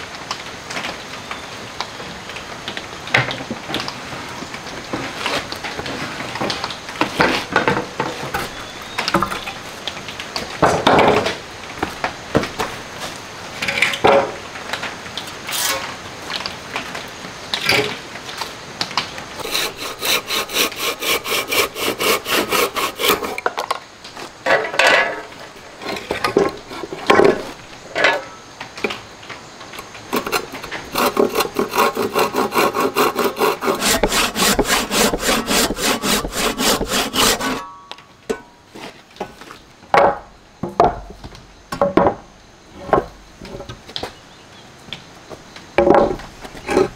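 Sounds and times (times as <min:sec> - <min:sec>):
hand saw cutting wood: 0:19.4 - 0:23.6, 0:25.8 - 0:27.2, 0:30.1 - 0:37.7.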